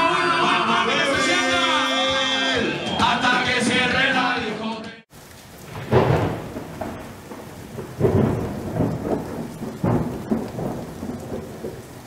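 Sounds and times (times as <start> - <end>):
steady rain: 5.1 - 12.0
thunder rumbling: 5.2 - 12.0.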